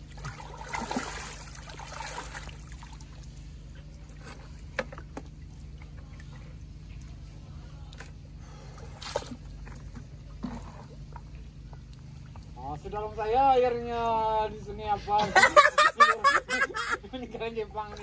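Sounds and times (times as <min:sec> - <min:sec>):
muddy water sloshing: 0:00.0 - 0:12.8
low steady hum: 0:00.0 - 0:18.0.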